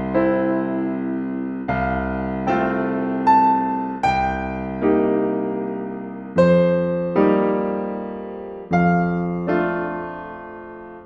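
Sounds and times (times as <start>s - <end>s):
slow piano chords: 0.0s - 11.0s.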